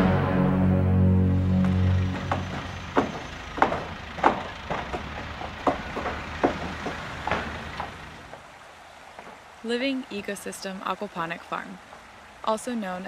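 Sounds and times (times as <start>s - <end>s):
steady background noise: 1.2s - 13.0s
hammering on wood: 1.6s - 8.1s.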